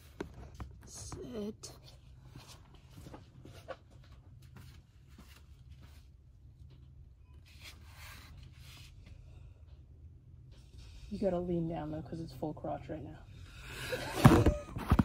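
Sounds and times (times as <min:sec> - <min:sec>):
faint rustles and shuffles: 0:00.0 - 0:11.9.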